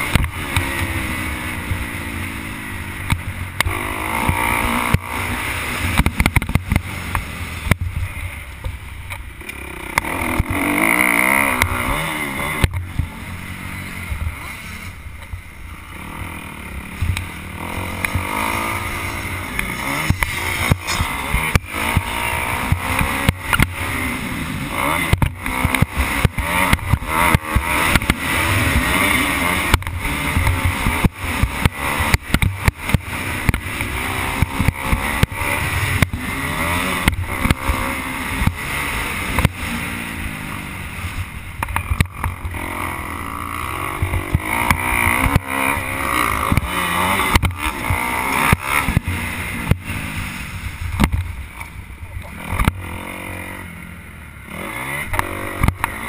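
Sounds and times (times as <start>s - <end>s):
motocross bike engine revving: 0.0s - 56.0s.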